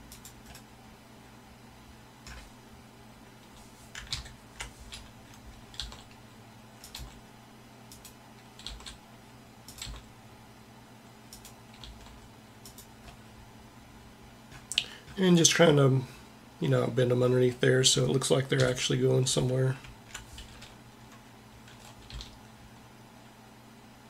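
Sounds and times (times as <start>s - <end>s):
keyboard and mouse clicks: 0.0s - 0.7s, 2.2s - 2.5s, 3.9s - 6.2s, 6.8s - 7.2s, 7.9s - 9.0s, 9.7s - 10.1s, 11.3s - 13.2s
faint steady hum: 0.0s - 24.0s.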